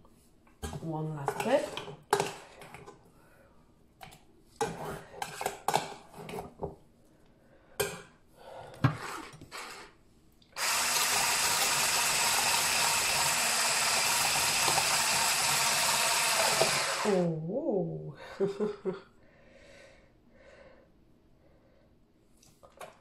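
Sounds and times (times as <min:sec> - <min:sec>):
hand blender whisking: 0:10.6 - 0:17.3.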